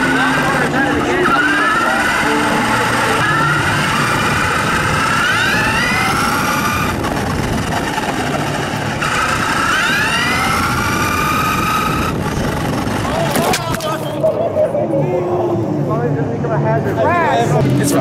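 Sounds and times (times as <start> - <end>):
remote control car motor whining: 0.0 - 13.9.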